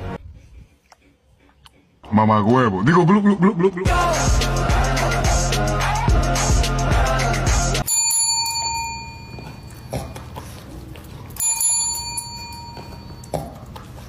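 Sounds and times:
desk service bell ding: 0:07.8 - 0:09.9, 0:11.4 - 0:13.3.

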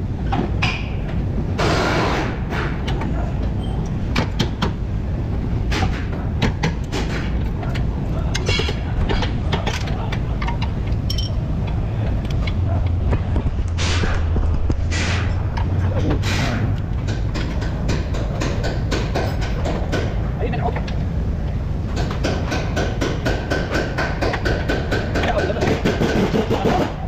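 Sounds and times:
steady low hum: 0:00.0 - 0:27.0
metallic clicks and clinks of tools: 0:09.6 - 0:11.4.

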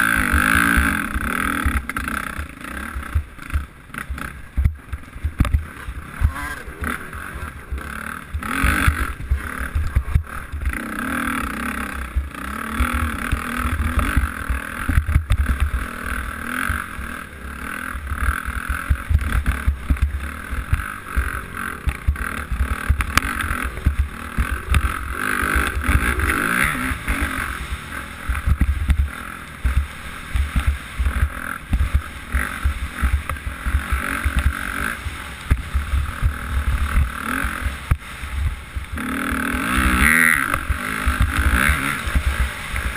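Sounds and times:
dirt bike engine: 0:00.0 - 0:42.9.

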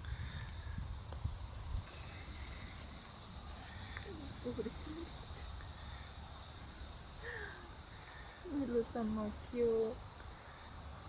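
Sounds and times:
high insect drone: 0:00.0 - 0:11.0
low wind rumble: 0:00.0 - 0:11.0.

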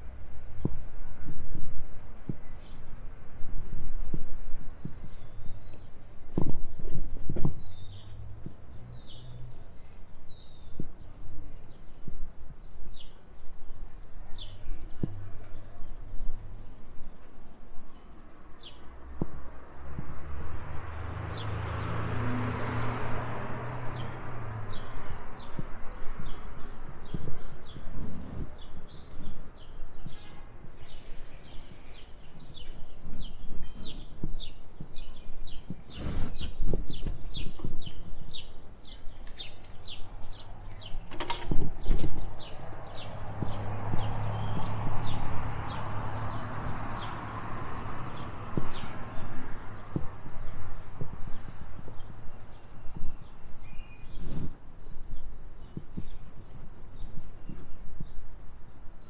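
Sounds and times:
bicycle freewheel ticking: 0:00.0 - 0:27.9, 0:42.3 - 0:54.0, 0:55.3 - 0:59.0
bird chirping: 0:04.6 - 0:12.0, 0:23.7 - 0:59.0.

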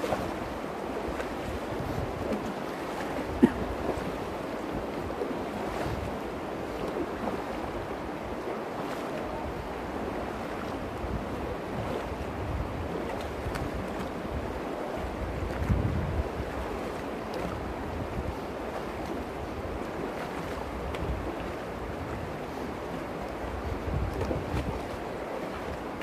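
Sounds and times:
water rushing over stones: 0:00.0 - 0:26.0.

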